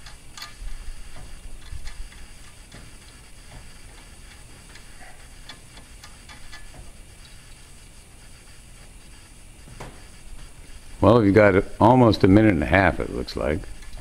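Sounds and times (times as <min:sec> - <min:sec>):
metal tube clicking and tapping: 0:00.0 - 0:07.5.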